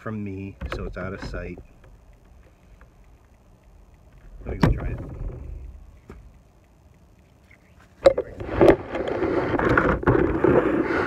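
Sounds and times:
rubbing against microphone: 7.4 - 11.0.

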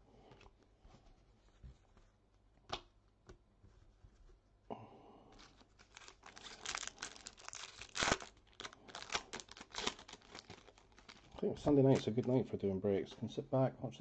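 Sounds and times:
wrapper tearing and crinkling: 5.4 - 12.0.

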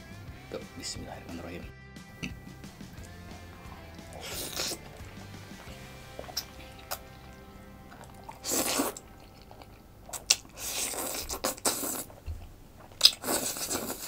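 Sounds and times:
chewing: 2.2 - 14.0
person slurping noodles: 3.0 - 12.2, 12.9 - 14.0.

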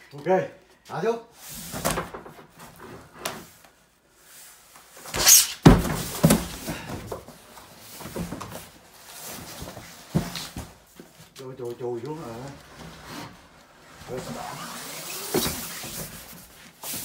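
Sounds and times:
carton thudding at bottom: 5.6 - 7.2
carton scraping down wooden ramp: 12.1 - 17.0.

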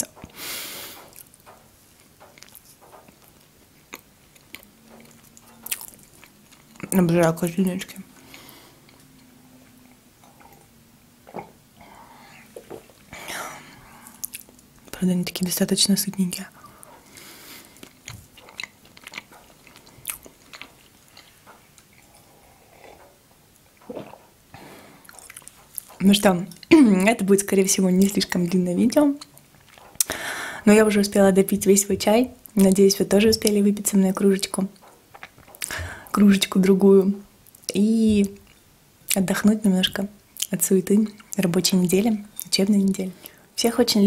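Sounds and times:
soft chewing: 0.0 - 15.0, 16.4 - 26.8, 29.2 - 30.1, 34.5 - 36.2, 40.4 - 43.4
breathy hiss of air: 0.3 - 1.1, 16.6 - 17.8, 24.5 - 25.1, 30.1 - 30.7
crunchy brittle chewing: 1.1 - 7.0, 16.7 - 23.2, 25.0 - 26.7, 34.8 - 35.8
wet mouth clicks: 35.2 - 36.0.

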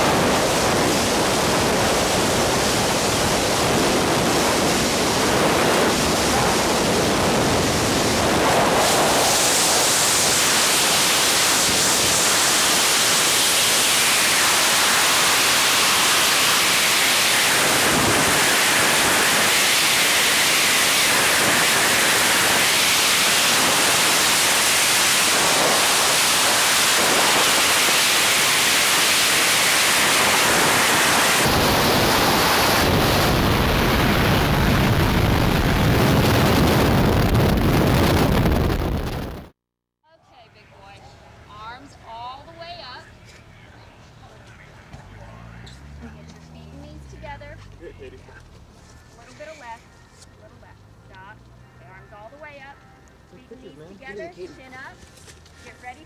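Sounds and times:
freefall wind rush: 0.0 - 39.6
parachute deploying rumble: 0.0 - 39.6.

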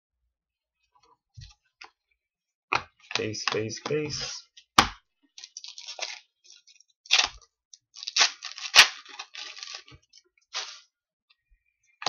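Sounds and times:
foil wrapper crinkling and tearing: 5.4 - 10.8.

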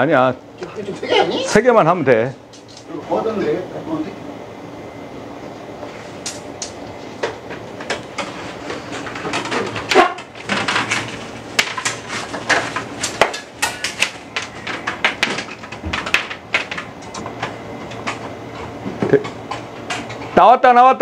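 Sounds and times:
plastic conduit rattling and scraping: 7.9 - 16.9.

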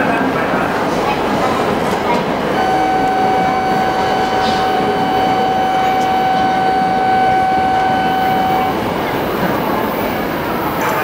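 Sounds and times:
crowded platform noise: 0.0 - 11.0
steady whistle-like tone: 2.6 - 8.9.

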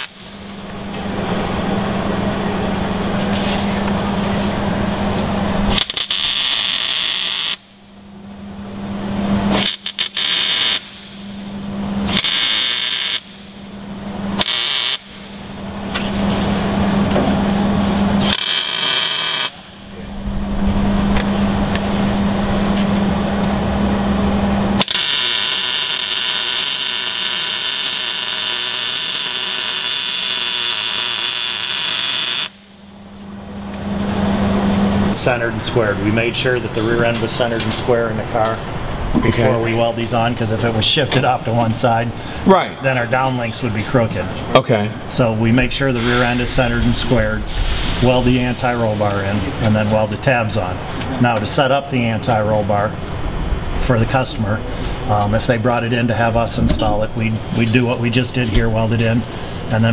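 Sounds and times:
welding arc crackling: 0.0 - 0.4, 5.6 - 7.7, 9.5 - 11.2, 12.0 - 13.6, 14.4 - 15.6, 18.2 - 19.8, 24.8 - 32.7.

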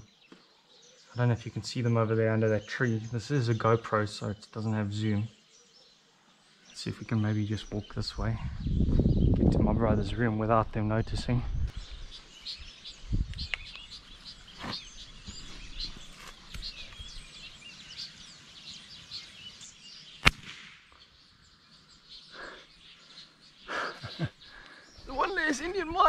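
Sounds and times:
birds chirping: 0.0 - 26.0
rifle shot: 20.2 - 20.9.

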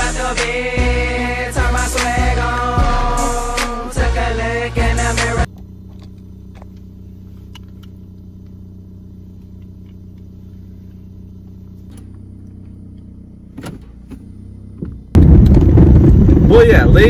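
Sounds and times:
car engine idling: 0.0 - 17.0
gear selector clicks: 5.5 - 8.6, 11.8 - 15.0.

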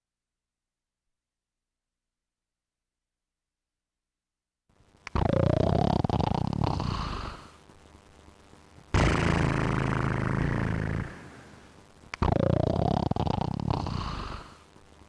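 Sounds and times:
person imitating snoring: 5.1 - 7.6, 9.0 - 11.6, 12.2 - 14.6.

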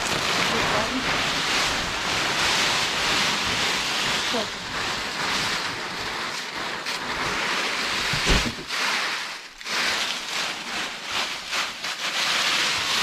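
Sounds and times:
dry flakes rustling and crackling: 0.0 - 13.0
thump: 8.1 - 8.7.

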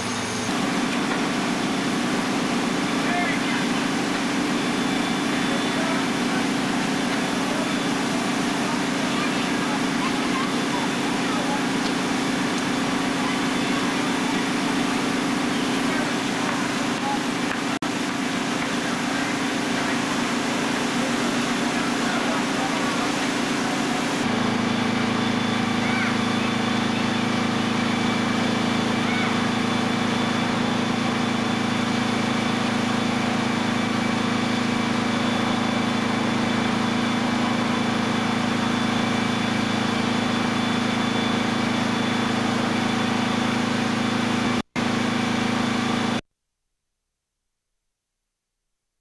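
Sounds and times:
truck engine idling: 0.3 - 44.6.

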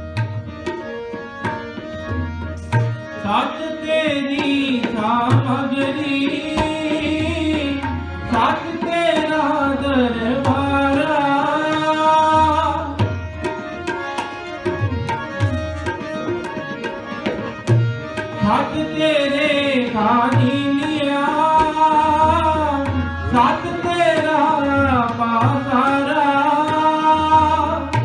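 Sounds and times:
tabla drum strokes: 0.0 - 3.4, 11.7 - 19.6, 26.6 - 28.0
harmonium: 0.0 - 28.0.

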